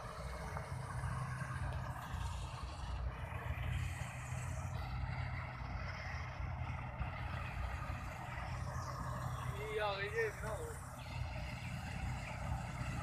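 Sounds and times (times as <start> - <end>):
combine harvester engine drone: 0.0 - 13.0
machinery noise: 0.0 - 13.0.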